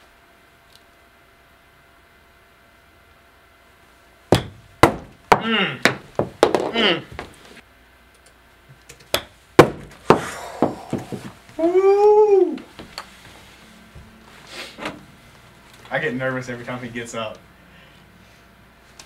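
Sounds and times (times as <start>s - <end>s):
golf clubs striking balls: 4.3s - 7.4s.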